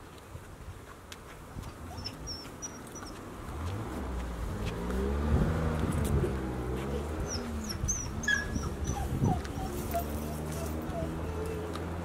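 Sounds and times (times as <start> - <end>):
vehicle engine passing: 3.0 - 12.0.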